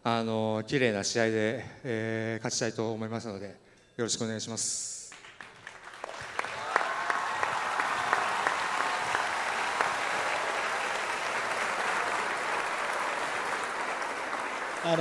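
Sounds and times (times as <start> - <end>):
audience applauding: 5.1 - 15.0.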